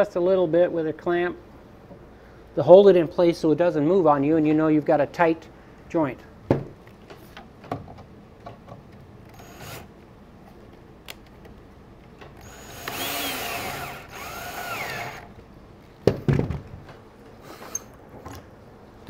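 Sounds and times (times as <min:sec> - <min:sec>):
cordless drill driving screw: 0:09.3 - 0:09.9, 0:12.4 - 0:15.3.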